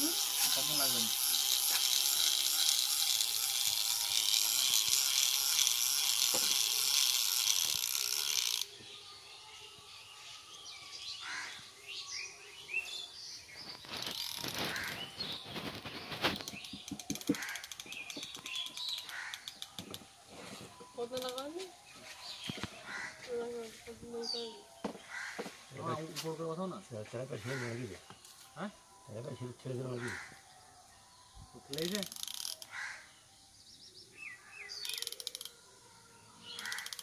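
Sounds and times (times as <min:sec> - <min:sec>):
high-pitched buzzing hiss: 0:00.0 - 0:08.9, 0:11.9 - 0:22.7, 0:31.4 - 0:32.8
birds chirping: 0:08.2 - 0:37.0
sharp clicks: 0:15.7 - 0:20.1, 0:34.8 - 0:35.6, 0:36.6 - 0:37.0.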